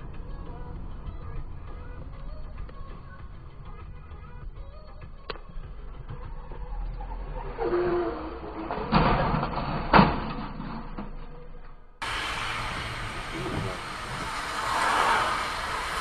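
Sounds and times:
tyres hissing on wet road: 12.0 - 16.0.

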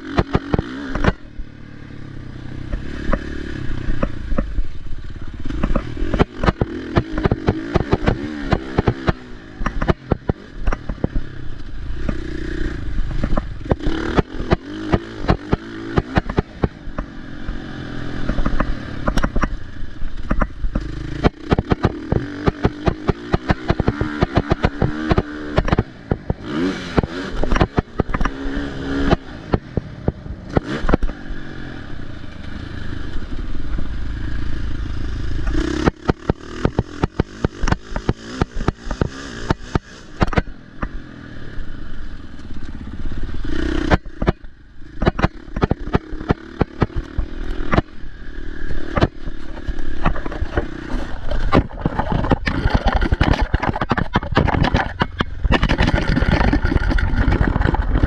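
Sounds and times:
bike knocks and clatter: 0.0 - 1.2, 5.5 - 11.3, 18.2 - 19.6, 20.2 - 28.4, 35.4 - 41.0, 48.8 - 58.0
motocross engine revving: 0.0 - 58.0.

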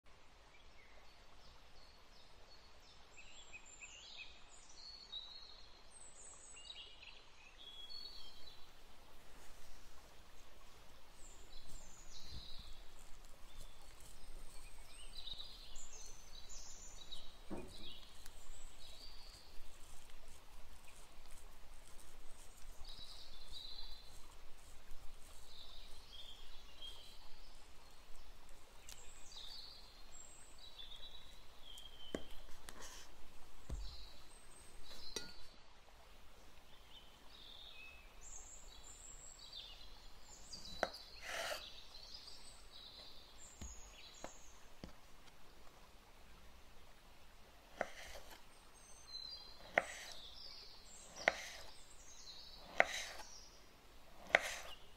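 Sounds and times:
knife cutting fruit on wooden board: 32.1 - 33.1, 40.6 - 41.7, 47.8 - 48.4, 49.6 - 50.2, 51.1 - 51.8, 52.6 - 53.3, 54.2 - 54.8.

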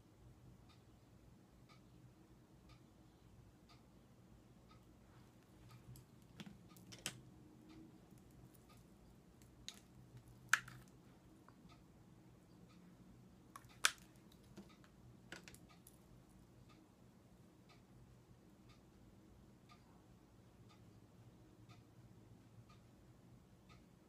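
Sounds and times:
makeup cases clicking and tapping: 6.3 - 7.2, 9.7 - 10.9, 13.6 - 15.6.

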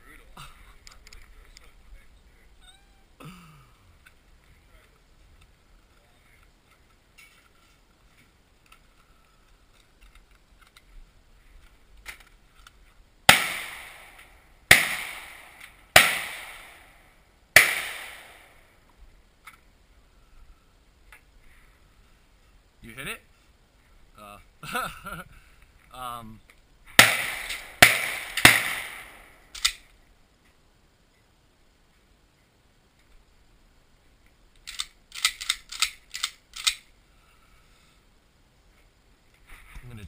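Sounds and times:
gunshots with ringing tail: 13.3 - 17.0, 17.6 - 18.6, 27.0 - 29.4.

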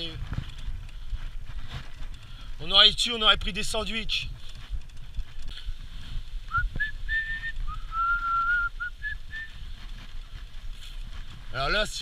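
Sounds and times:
cart wheels rolling on dirt: 0.0 - 12.0
person whistling: 6.5 - 9.6.

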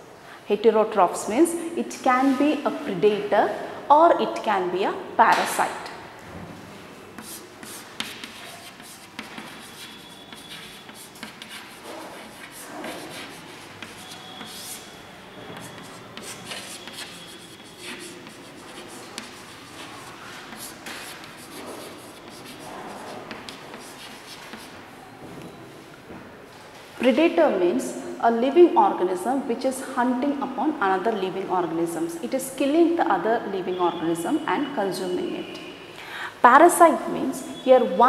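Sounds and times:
chalk squeaks: 7.2 - 24.7
chalk scratching on chalkboard: 7.2 - 24.8
chalk tapping: 7.2 - 24.8.

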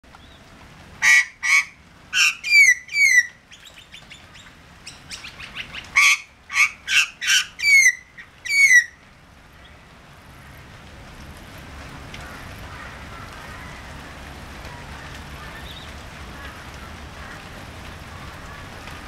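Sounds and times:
magpie calling: 1.0 - 9.0.

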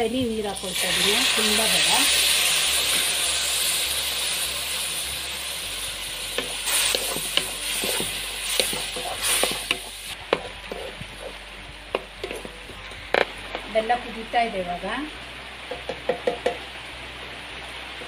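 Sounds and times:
syrup sizzling in a hot wok: 0.2 - 12.5.

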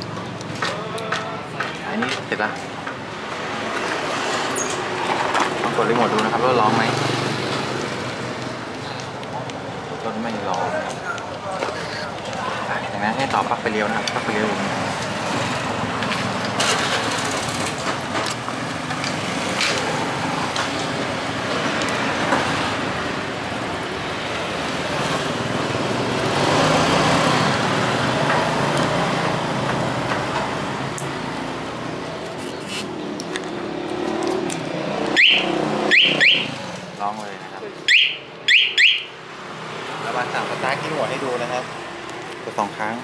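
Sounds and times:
vehicle noise: 0.0 - 43.0
motorcycle alarm siren chirps: 35.1 - 36.6, 37.9 - 39.2.

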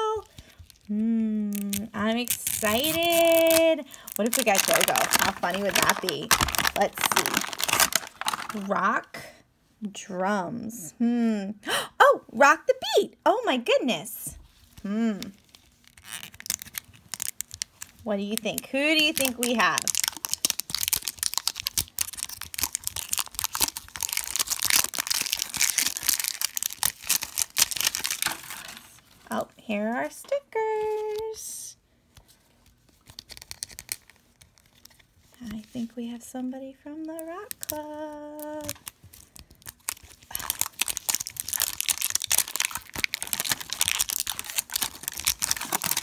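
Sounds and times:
plastic wrapping crinkling and tearing: 0.0 - 8.8, 14.6 - 29.3, 32.6 - 35.9, 37.0 - 46.0.

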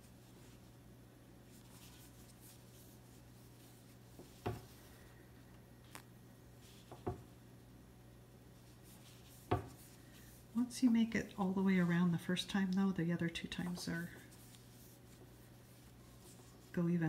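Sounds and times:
low room hum: 0.0 - 17.0
yarn rubbing on crochet hook: 1.5 - 4.5, 8.6 - 12.2, 13.4 - 16.8.

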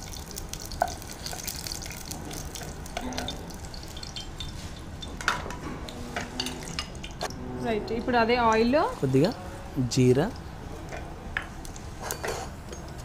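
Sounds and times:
hot oil crackling and sizzling: 0.0 - 5.6.

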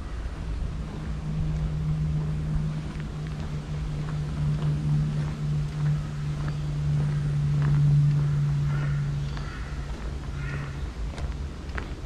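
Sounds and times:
wind rumbling on microphone: 0.0 - 12.0.

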